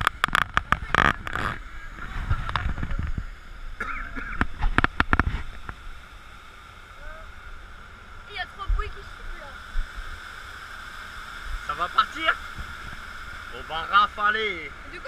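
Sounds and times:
water churning around raft: 0.0 - 15.0
voices: 8.2 - 9.7, 13.4 - 15.0.

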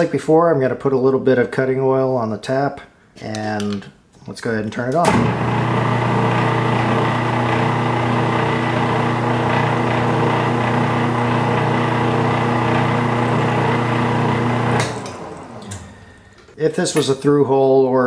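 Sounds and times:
metal lathe motor hum: 5.2 - 16.6.

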